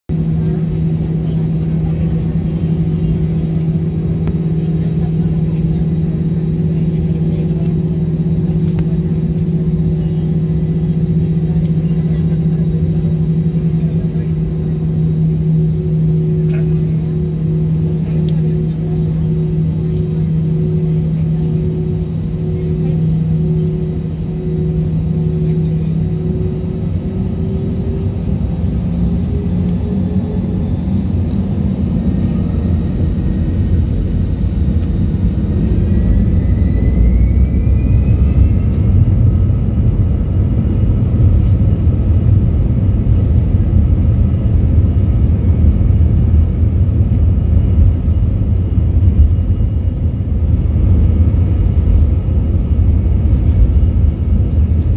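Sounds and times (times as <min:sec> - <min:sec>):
runway rumble: 0:00.1 - 0:54.9
jet engines spooling up: 0:13.2 - 0:42.2.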